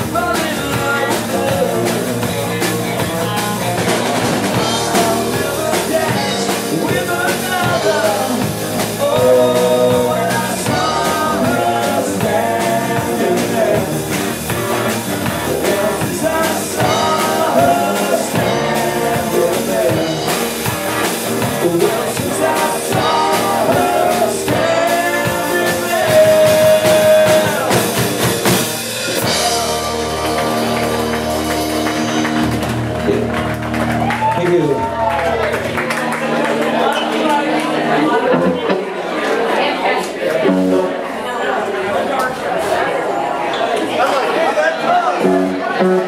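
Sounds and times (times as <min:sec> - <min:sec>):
man singing: 0:00.0 - 0:30.3
rock band playing: 0:00.0 - 0:41.2, 0:44.7 - 0:46.0.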